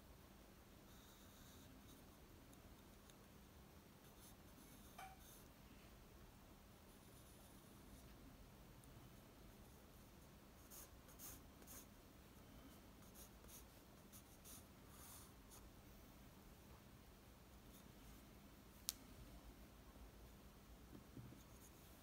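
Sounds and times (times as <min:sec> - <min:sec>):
pencil scratching on paper: 0:10.6 - 0:11.9, 0:13.0 - 0:15.6.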